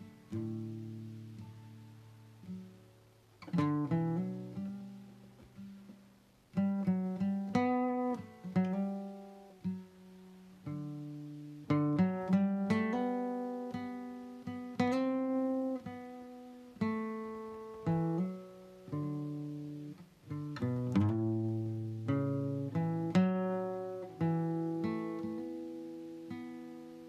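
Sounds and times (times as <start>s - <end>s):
acoustic guitar playing: 0.0s - 27.0s.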